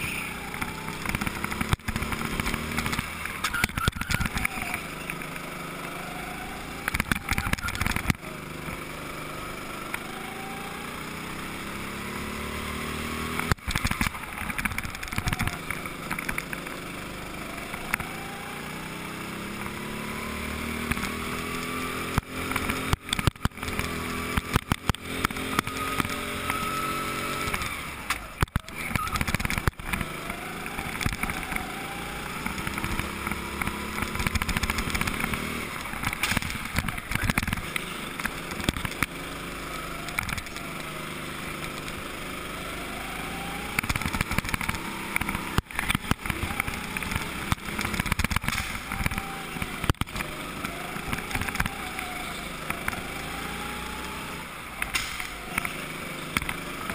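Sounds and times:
go-kart engine accelerating: 0:00.0 - 0:56.9
sharp knocks and crackles: 0:00.5 - 0:05.4, 0:06.8 - 0:08.2, 0:13.3 - 0:16.7, 0:20.8 - 0:26.5, 0:27.5 - 0:31.6, 0:32.4 - 0:39.1, 0:40.1 - 0:40.8, 0:43.7 - 0:52.0, 0:54.8 - 0:55.8.

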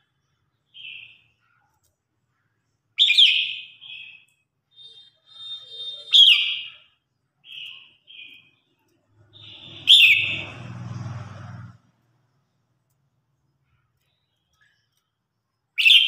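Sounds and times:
soft bird chirps: 0:00.0 - 0:16.0
bulbul singing: 0:00.1 - 0:01.6, 0:03.0 - 0:10.7, 0:13.6 - 0:16.0.

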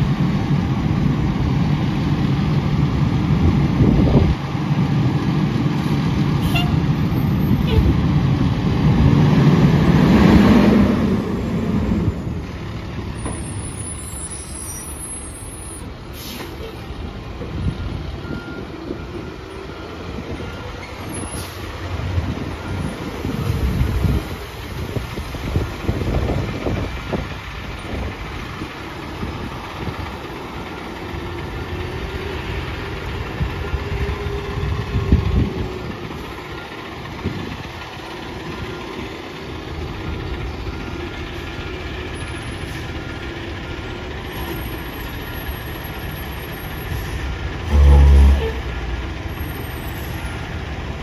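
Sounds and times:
diesel truck engine running: 0:00.0 - 0:51.0
loud low horn blast: 0:47.6 - 0:49.0.

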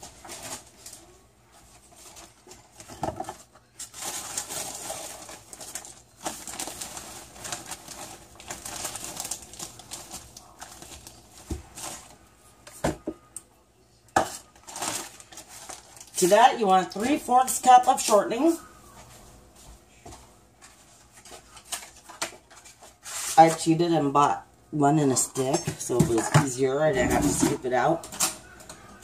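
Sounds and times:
plastic bag crinkling: 0:00.0 - 0:12.3, 0:14.2 - 0:19.0.

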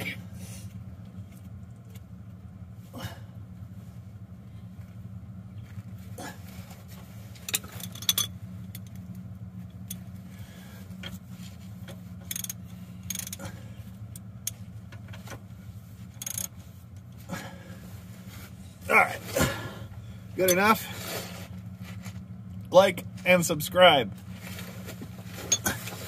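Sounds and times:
low hum: 0:00.0 - 0:26.0
metal clinks and knocks: 0:07.4 - 0:10.2, 0:11.8 - 0:13.5, 0:16.1 - 0:16.6, 0:25.3 - 0:26.0
ratchet clicking: 0:12.2 - 0:13.4, 0:16.1 - 0:16.6.

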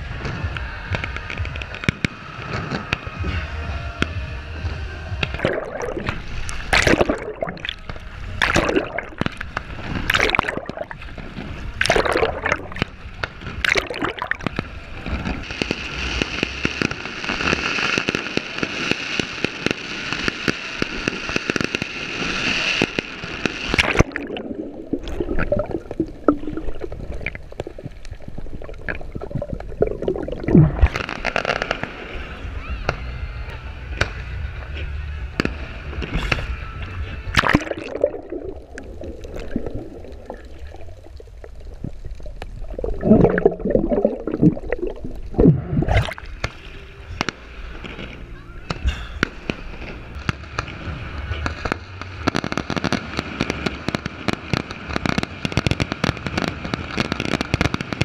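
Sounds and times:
firework bangs: 0:00.0 - 0:07.2, 0:07.8 - 0:24.2, 0:30.6 - 0:37.8, 0:46.4 - 0:58.0
water sloshing and gurgling: 0:05.3 - 0:12.9, 0:13.6 - 0:14.5, 0:23.8 - 0:31.0, 0:37.3 - 0:46.6
steady hiss: 0:14.5 - 0:29.7.

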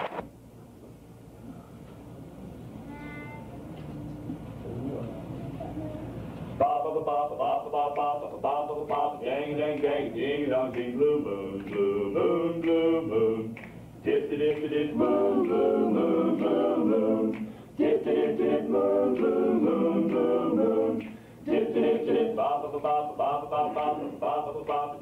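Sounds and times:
male group singing a cappella: 0:06.6 - 0:25.0.

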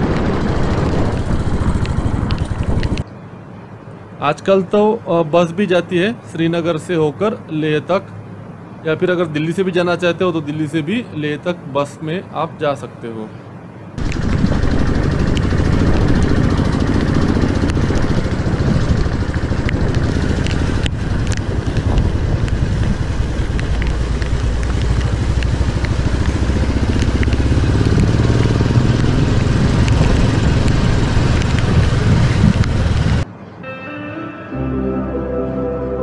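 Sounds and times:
motorcycle engine rumbling: 0:00.0 - 0:03.0, 0:14.0 - 0:33.4.

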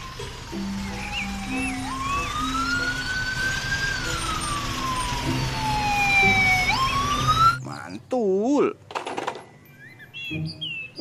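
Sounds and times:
police siren wailing: 0:00.0 - 0:07.6.

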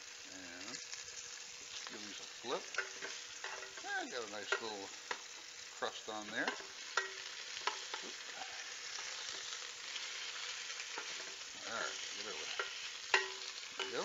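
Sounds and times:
steaks sizzling in oil: 0:00.0 - 0:14.0
tongs clicking against pan: 0:02.6 - 0:05.5, 0:06.2 - 0:14.0.

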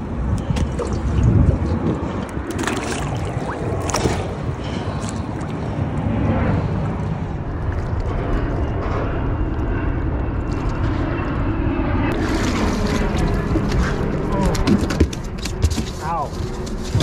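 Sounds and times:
wind buffeting microphone: 0:00.0 - 0:15.7
water washing against boat hull: 0:00.5 - 0:05.8.

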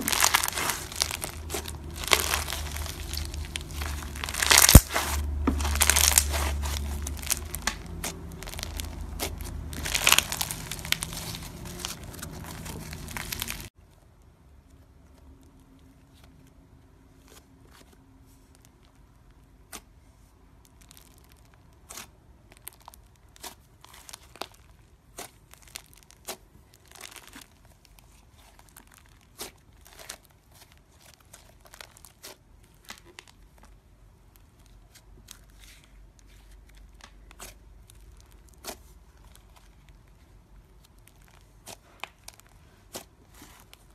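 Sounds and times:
foam bead slime crackling: 0:00.0 - 0:13.8, 0:20.6 - 0:43.9.

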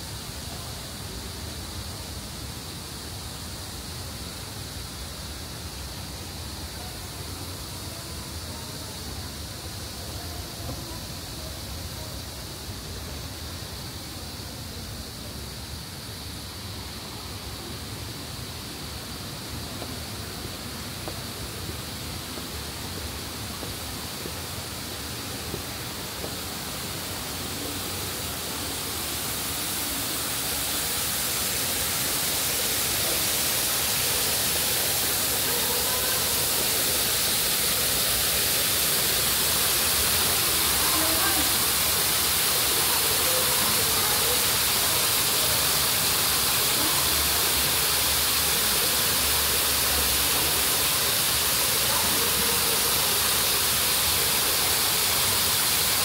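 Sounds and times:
faint voices: 0:00.0 - 0:56.0
steady rushing hiss: 0:00.0 - 0:56.0.

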